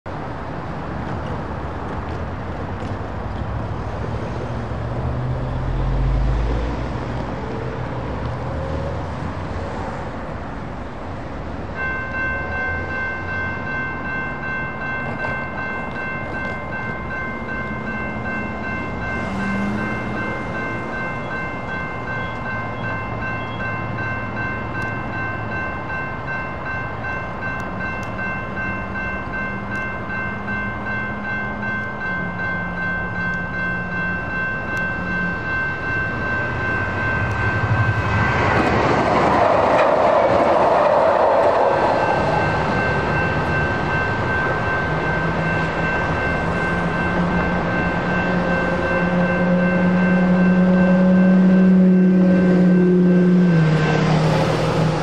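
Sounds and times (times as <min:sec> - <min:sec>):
road traffic passing: 0:00.1 - 0:55.0
railroad crossing bell ringing: 0:04.0 - 0:55.0
vehicle passing close: 0:18.7 - 0:21.6.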